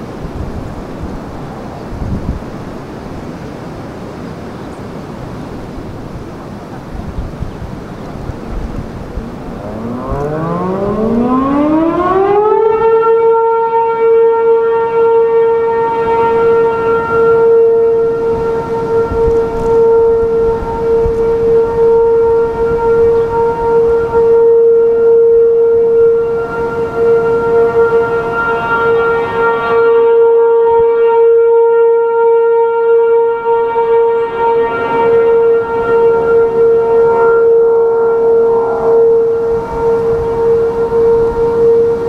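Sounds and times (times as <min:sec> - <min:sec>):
wind noise: 0:00.0 - 0:42.0
warning siren winding up: 0:09.0 - 0:42.0.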